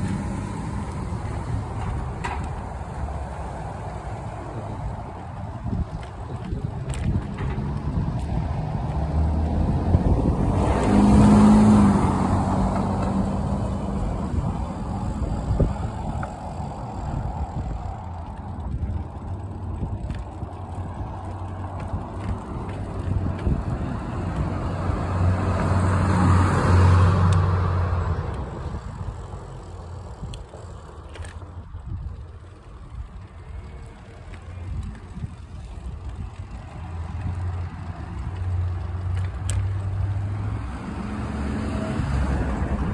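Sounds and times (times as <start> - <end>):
cars passing: 0.0 - 42.9
wind on microphone: 0.0 - 42.9.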